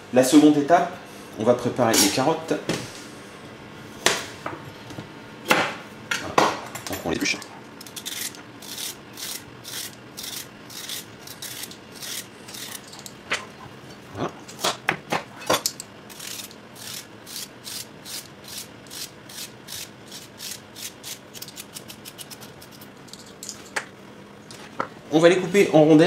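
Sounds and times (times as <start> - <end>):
knife scraping carrots: 7.8 - 12.9, 16.1 - 23.0.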